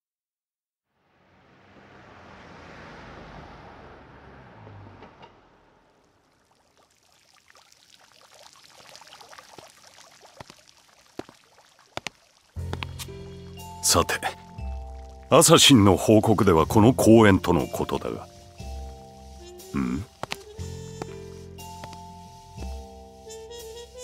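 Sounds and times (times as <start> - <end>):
rush of running water: 5.9 - 13.0
clicks and drips: 6.4 - 13.1.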